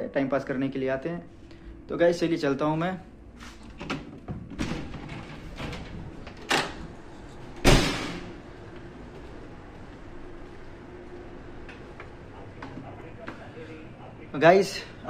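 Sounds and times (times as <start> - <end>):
steady low hum: 0.0 - 15.0
heavy door slamming: 7.5 - 8.4.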